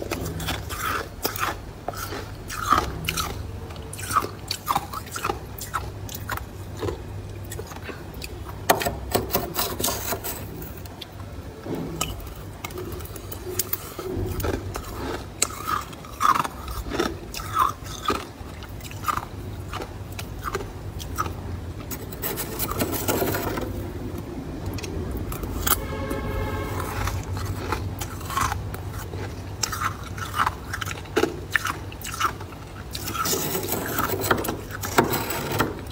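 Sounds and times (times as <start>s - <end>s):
freezer frost being scraped: 9.1s - 10.8s, 21.9s - 23.7s, 33.0s - 35.9s.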